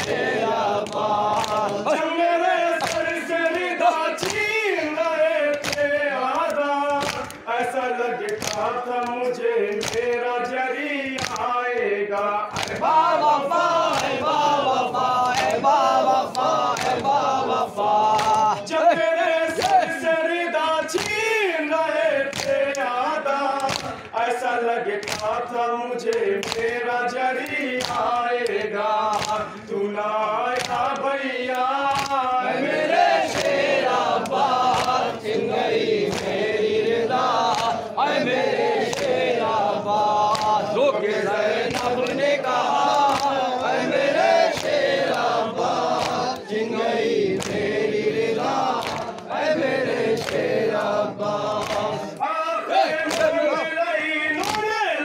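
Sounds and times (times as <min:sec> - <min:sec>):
men chanting in unison: 0:00.0 - 0:55.0
chest-beating slaps: 0:02.8 - 0:04.6, 0:05.4 - 0:07.5, 0:08.2 - 0:10.2, 0:11.2 - 0:13.0, 0:13.8 - 0:18.6, 0:23.6 - 0:24.2, 0:24.9 - 0:25.4, 0:27.4 - 0:52.2, 0:53.0 - 0:53.4, 0:54.4 - 0:54.7.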